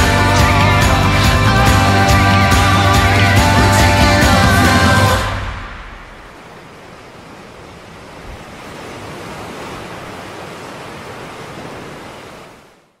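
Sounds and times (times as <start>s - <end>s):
sea waves washing onto beach: 5.2s - 12.8s.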